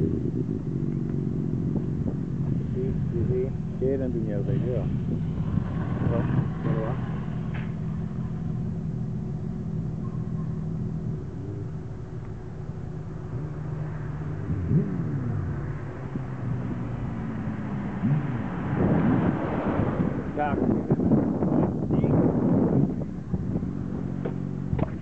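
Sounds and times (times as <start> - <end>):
vehicle engine idling: 0.0 - 18.2.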